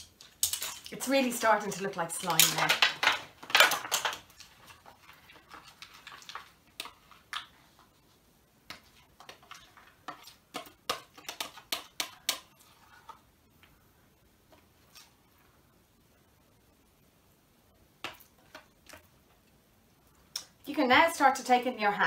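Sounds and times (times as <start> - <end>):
metal spoon stirring slime: 0.0 - 2.9, 3.6 - 7.9, 8.7 - 13.3
spoon scraping plastic bowl: 8.7 - 13.3.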